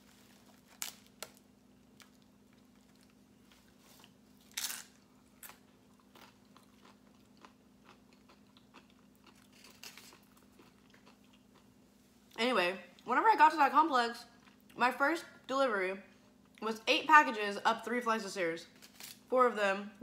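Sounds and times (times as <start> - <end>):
faint steady hum: 0.0 - 20.0
soft chewing: 0.1 - 12.4, 14.3 - 14.8.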